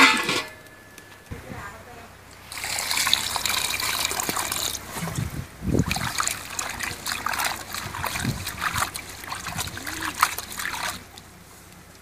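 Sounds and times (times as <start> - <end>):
water pouring into a metal bowl: 2.4 - 11.2
hands washing chicken in water: 2.4 - 11.3.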